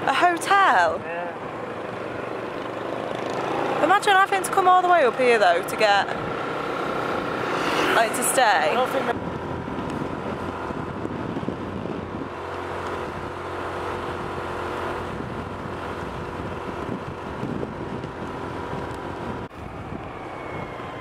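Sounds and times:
motorbike engine running: 1.7 - 19.5
wind rushing over microphone: 7.1 - 21.0.

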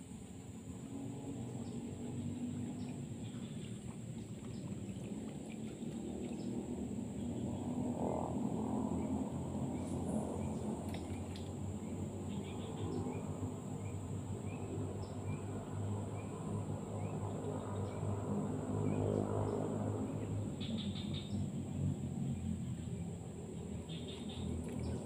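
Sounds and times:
steady low hum: 0.0 - 25.0
bird chirps: 20.5 - 21.4, 23.9 - 25.0.

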